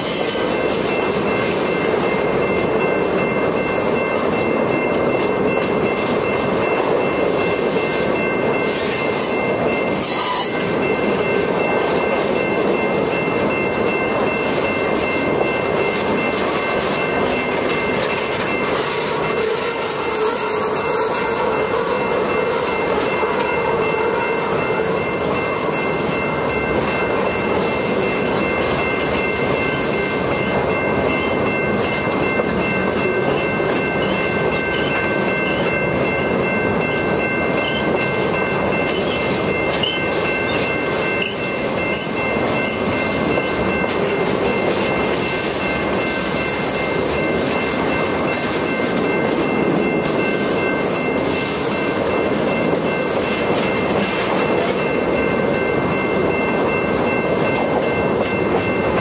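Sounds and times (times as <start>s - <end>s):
train wheels rumbling on rails: 0.0s - 59.0s
high-pitched wheel squeal: 10.0s - 10.7s.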